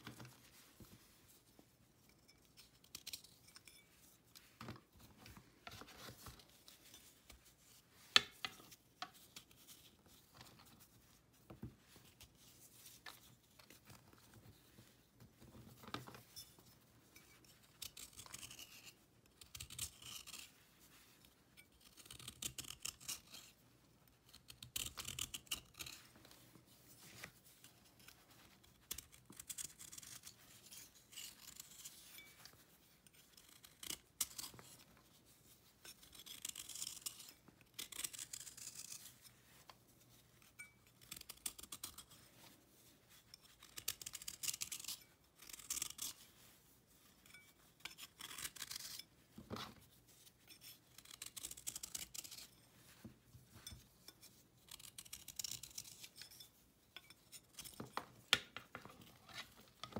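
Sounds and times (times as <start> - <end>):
knife scraping chalky paste: 2.0 - 4.6, 17.2 - 58.3, 58.9 - 59.9.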